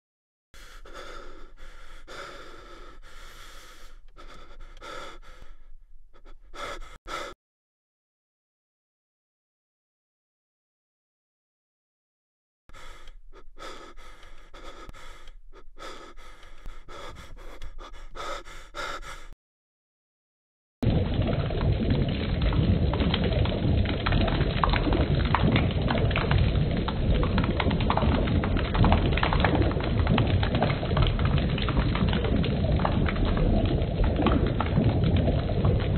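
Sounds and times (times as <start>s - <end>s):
person breathing heavily: 0.6s - 7.4s, 12.7s - 19.4s
liquid pouring and splashing on face: 20.8s - 35.9s.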